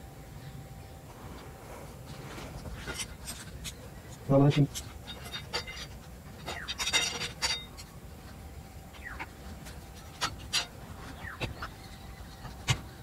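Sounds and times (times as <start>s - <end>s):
metal tools scraping on metal: 2.7s - 7.9s, 9.6s - 10.8s.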